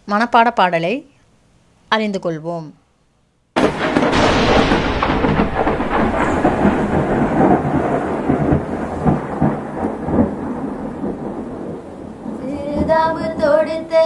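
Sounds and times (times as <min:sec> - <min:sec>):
rain: 0:03.6 - 0:13.5
thunder rolling: 0:03.6 - 0:14.0.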